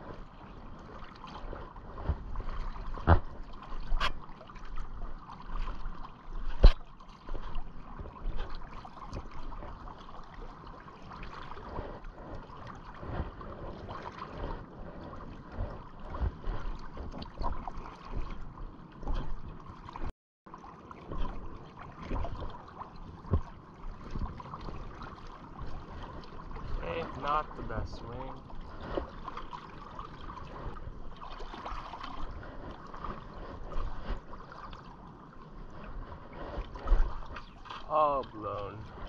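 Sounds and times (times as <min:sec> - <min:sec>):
river water lapping and gurgling: 0:00.0 - 0:39.0.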